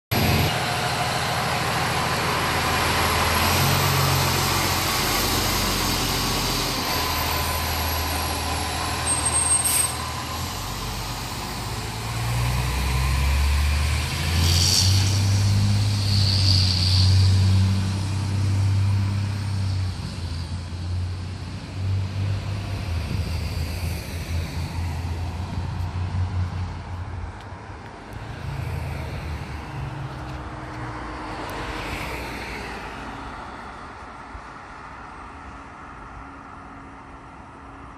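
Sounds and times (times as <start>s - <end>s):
diesel truck engine running: 0.1s - 21.8s.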